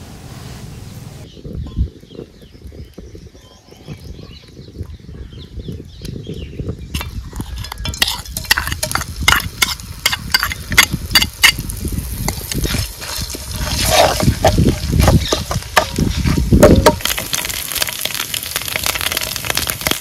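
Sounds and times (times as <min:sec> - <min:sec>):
metal utensils clinking and scraping: 0:07.0 - 0:11.6, 0:12.3 - 0:17.2.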